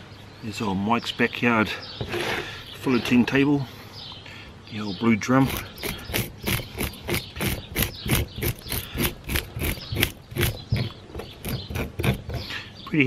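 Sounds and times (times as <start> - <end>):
fish scaler scraping scales: 5.4 - 12.6.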